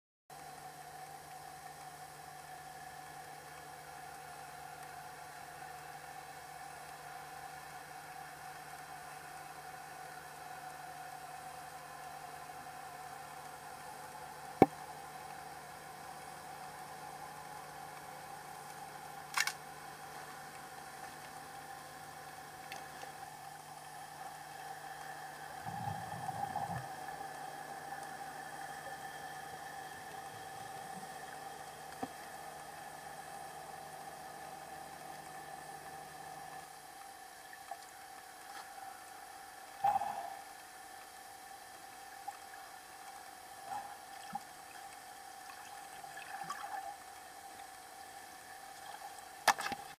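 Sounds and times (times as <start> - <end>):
faint hum: 0.3 - 50.0
small clicks: 18.7 - 19.6
muffled low rumble: 25.5 - 27.4.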